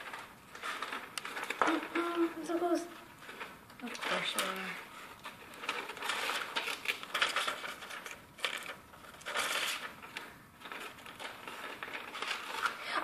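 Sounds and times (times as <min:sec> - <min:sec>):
paper rustling and crinkling: 0:00.0 - 0:13.0.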